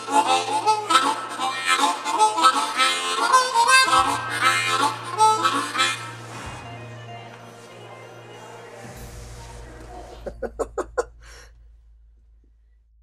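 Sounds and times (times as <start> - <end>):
harmonica playing: 0.0 - 8.8.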